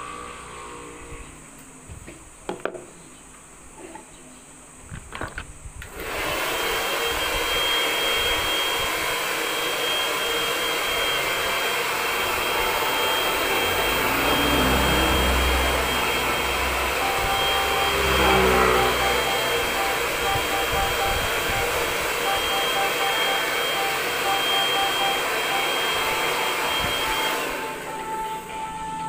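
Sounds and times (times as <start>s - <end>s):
hair dryer running: 5.8s - 29.0s.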